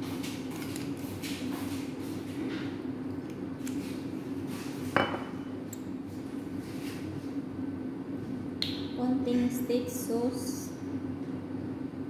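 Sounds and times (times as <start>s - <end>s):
steady low hum: 0.0s - 12.0s
glass bottle knocking on counter: 5.0s - 5.3s.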